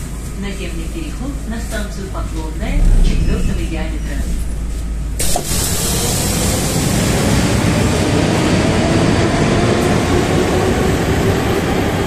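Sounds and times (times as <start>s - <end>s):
metro train rumble and hiss: 0.0s - 12.0s
metro doors sliding open: 2.6s - 6.9s.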